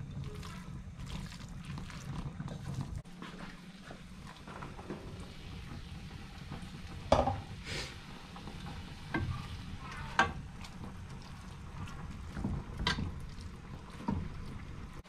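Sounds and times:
spatula stirring food in pot: 0.0 - 15.0.

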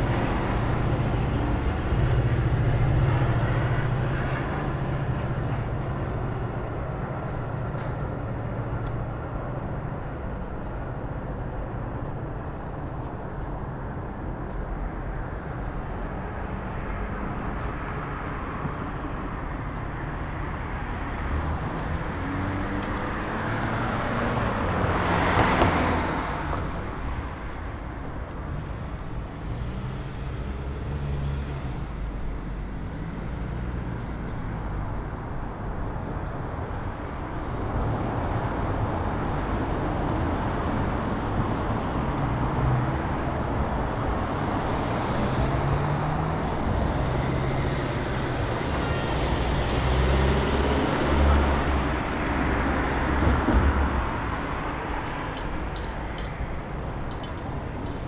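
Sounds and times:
street traffic rumble: 0.0 - 58.0
vehicle passing close: 40.4 - 55.3.

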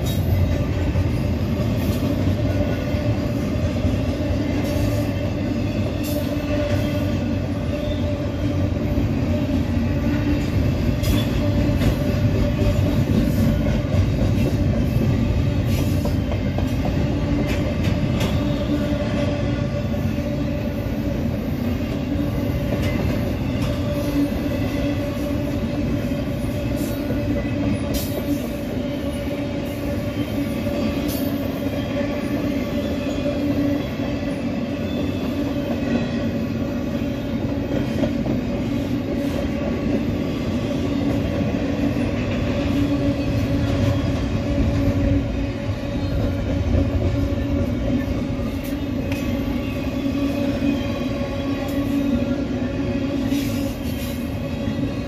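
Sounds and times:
steel wheels rumbling on rail: 0.0 - 55.0.

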